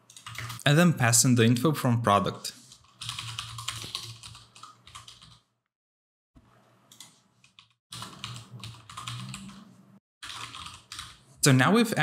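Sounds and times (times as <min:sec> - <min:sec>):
typing on computer keyboard: 0:00.1 - 0:00.6, 0:02.8 - 0:05.4, 0:06.9 - 0:09.6, 0:10.2 - 0:11.2.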